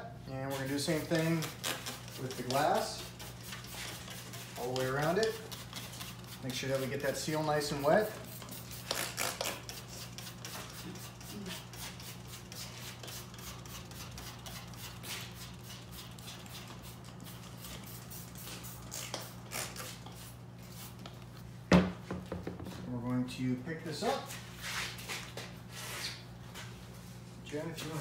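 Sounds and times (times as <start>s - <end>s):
spray bottle spritzing: 8.3s - 11.0s, 14.4s - 21.0s.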